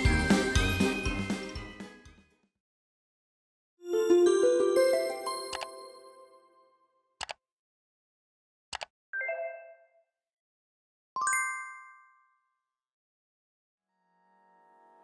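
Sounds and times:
chiming jingle: 0:00.0 - 0:02.2, 0:03.8 - 0:06.6.

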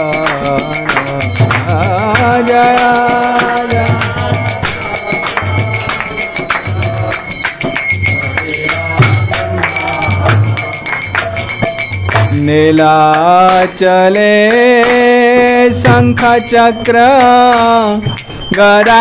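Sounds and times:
person singing: 0:00.0 - 0:11.7
regular drum beat: 0:00.0 - 0:19.0
ringing metal percussion: 0:00.0 - 0:19.0.

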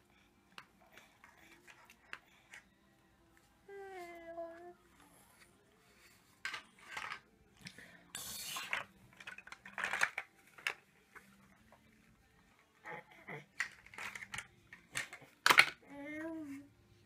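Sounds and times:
plastic toy blocks clattering: 0:06.4 - 0:07.3, 0:08.2 - 0:11.3, 0:13.6 - 0:15.9.

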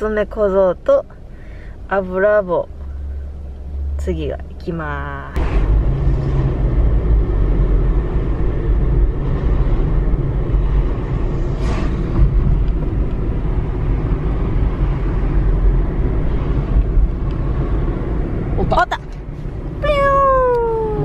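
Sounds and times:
car cabin road and engine rumble: 0:00.0 - 0:21.0.

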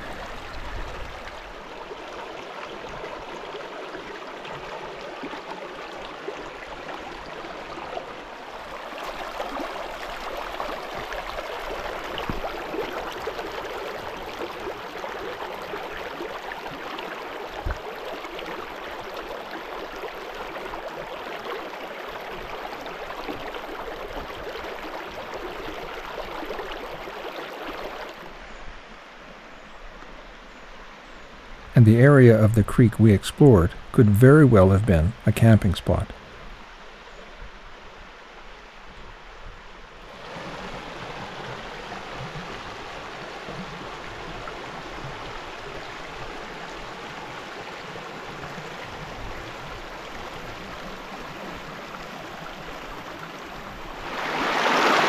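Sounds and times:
creek flowing over stones: 0:00.0 - 0:55.0.

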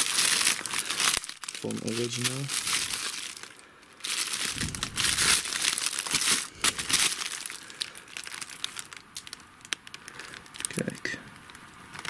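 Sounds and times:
packaging crinkling and rustling: 0:00.0 - 0:12.0
light crackles and clicks: 0:08.5 - 0:12.0.

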